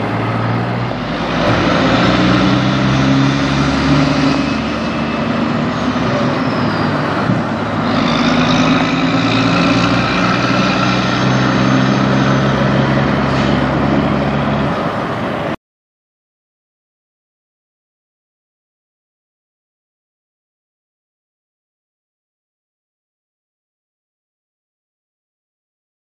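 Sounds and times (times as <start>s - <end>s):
truck diesel engine under load: 0.0s - 15.6s.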